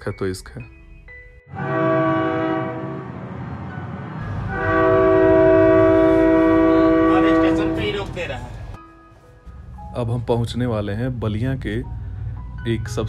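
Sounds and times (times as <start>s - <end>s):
train horn blasts: 1.5s - 3.3s, 4.2s - 8.5s
moving train rumble: 1.5s - 8.8s, 9.5s - 13.0s.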